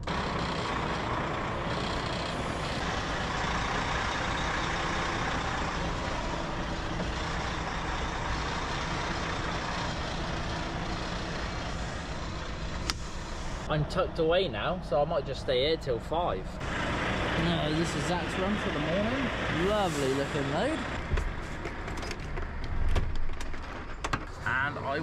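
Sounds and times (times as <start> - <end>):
lorry diesel engine running: 0.0 - 25.0.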